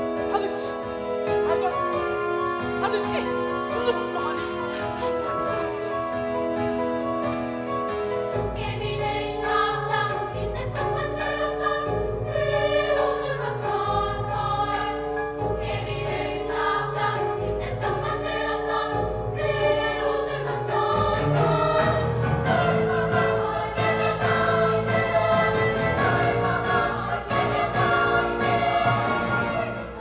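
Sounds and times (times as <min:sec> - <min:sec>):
children's choir singing: 0:08.4 - 0:30.0.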